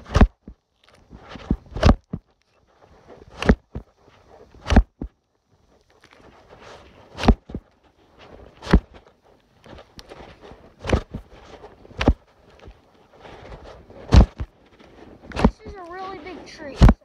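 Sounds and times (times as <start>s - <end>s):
hatchet swing rustle: 0.0s - 17.0s
hatchet chopping tree trunk: 4.6s - 5.0s, 7.2s - 7.5s, 14.1s - 14.5s.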